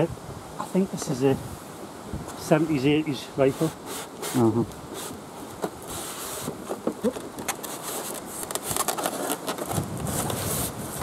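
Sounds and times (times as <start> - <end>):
cardboard scraping polystyrene: 5.8 - 6.8, 7.4 - 11.0.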